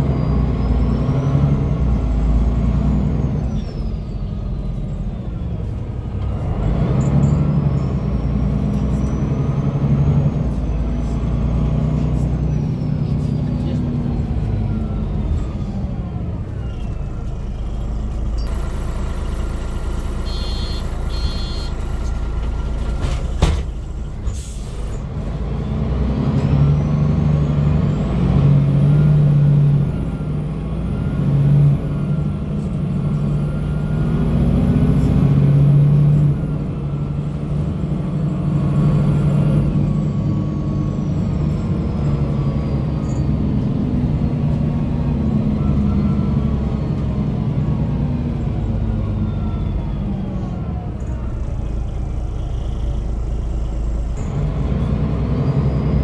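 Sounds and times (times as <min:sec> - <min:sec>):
bus diesel engine accelerating: 0:00.0 - 0:56.0
electronic beeps: 0:20.3 - 0:21.8.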